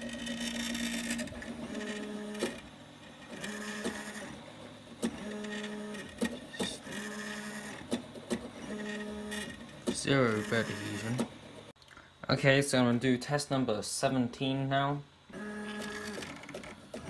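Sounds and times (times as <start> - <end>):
stepper motors whining: 0.0 - 11.7.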